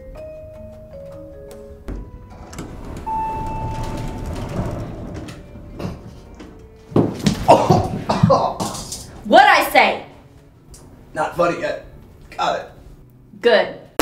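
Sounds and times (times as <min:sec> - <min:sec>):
elevator chime tone: 0:00.2 - 0:05.4
elevator running rumble: 0:00.4 - 0:08.2
sliding doors rattling: 0:01.8 - 0:09.3.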